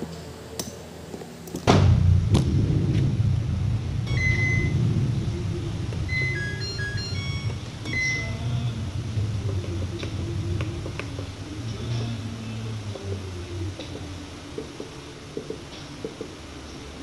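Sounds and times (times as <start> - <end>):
low steady rumble: 0.0 - 17.0
electronic start-up tune: 4.0 - 4.9, 6.0 - 8.6
washing machine beeping: 4.0 - 4.9, 6.0 - 8.7.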